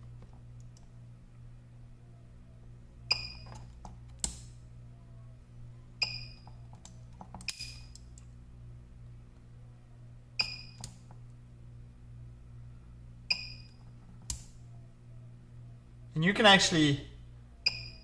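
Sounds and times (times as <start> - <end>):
spot welder sharp snaps: 4.1 - 4.5, 14.2 - 14.6.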